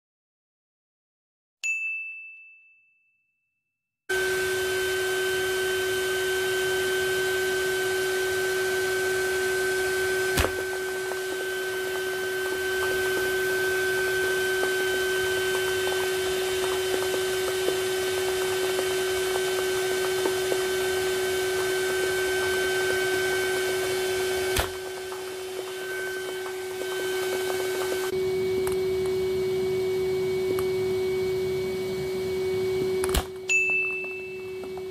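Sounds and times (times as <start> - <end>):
vacuum cleaner whining: 4.1 - 34.9
intro chime: 33.5 - 34.7.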